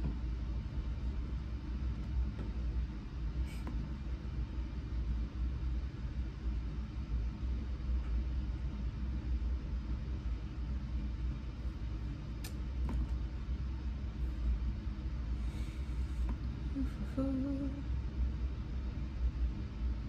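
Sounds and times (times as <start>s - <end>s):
steady low rumble: 0.0s - 20.0s
faint click: 12.4s - 12.6s.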